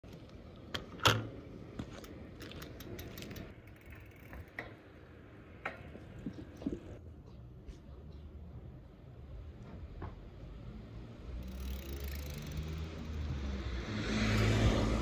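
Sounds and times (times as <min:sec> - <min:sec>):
bicycle hub clicks: 0:01.9 - 0:04.9, 0:11.3 - 0:13.4
bicycle ratcheting ticks: 0:02.4 - 0:04.8, 0:11.3 - 0:13.5.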